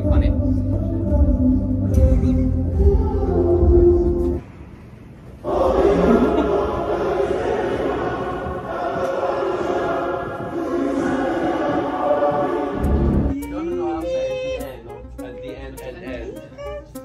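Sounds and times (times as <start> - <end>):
choir singing: 5.4 - 13.4.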